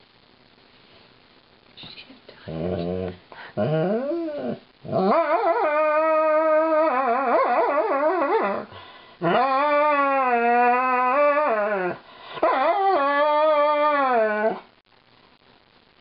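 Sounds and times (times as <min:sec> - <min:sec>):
dog howling: 0:02.6 - 0:14.7.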